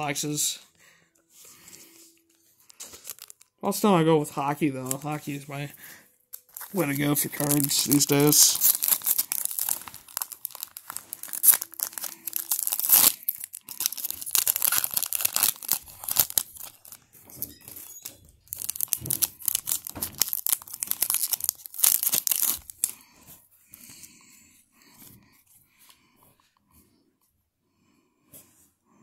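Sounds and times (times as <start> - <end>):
plastic wrapper tearing and crinkling: 2.2 - 3.8, 4.8 - 5.5, 6.3 - 23.0.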